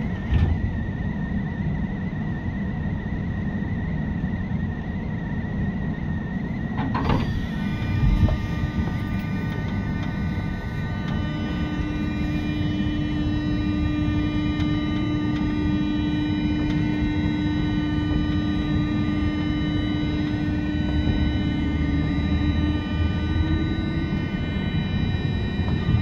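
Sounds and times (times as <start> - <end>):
electric train rumble: 0.0 - 26.0
low hum: 0.0 - 26.0
clunk: 6.7 - 7.4
steady tones: 7.2 - 26.0.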